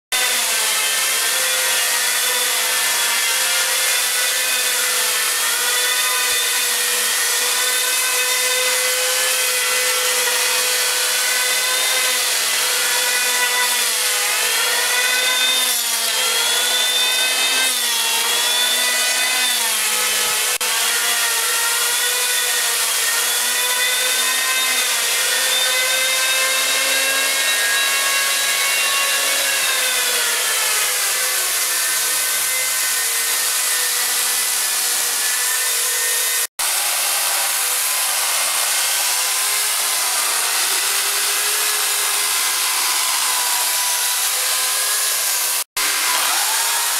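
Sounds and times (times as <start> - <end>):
power carving tool motor whine: 0.2 - 46.9
hiss of cutting wood: 26.8 - 46.9.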